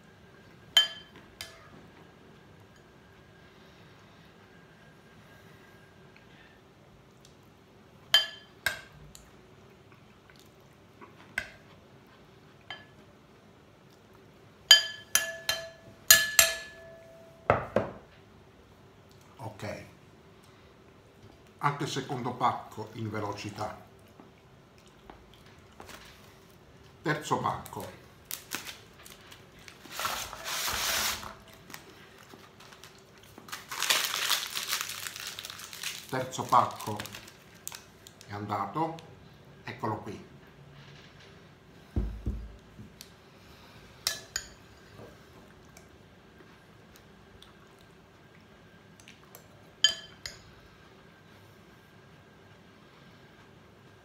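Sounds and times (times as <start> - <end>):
metal spoon clinking ceramic bowl: 0.8 - 1.6, 14.7 - 17.1, 49.8 - 50.5
plastic wrapper crinkling: 27.8 - 38.3.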